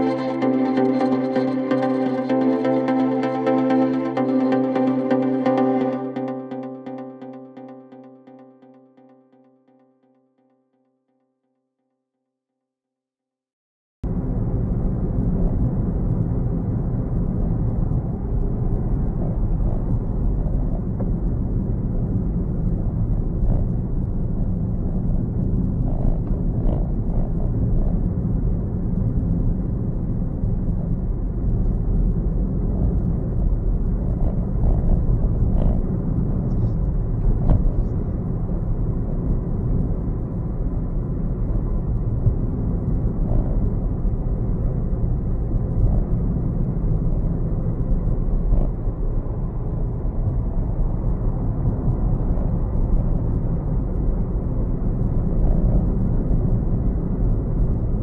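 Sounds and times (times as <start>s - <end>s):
car engine rumble inside cabin: 14.0s - 58.0s.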